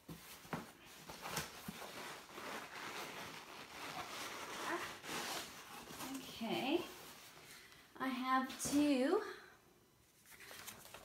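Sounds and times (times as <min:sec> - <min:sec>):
cardboard and packing rustling: 0:00.0 - 0:07.6, 0:10.1 - 0:11.0.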